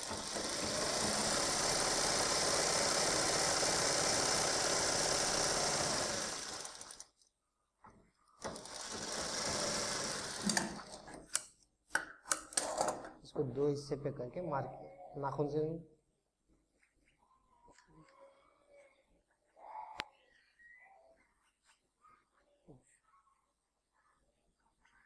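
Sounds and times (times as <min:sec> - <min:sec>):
sewing machine running: 0:00.0 - 0:07.1, 0:08.4 - 0:11.1.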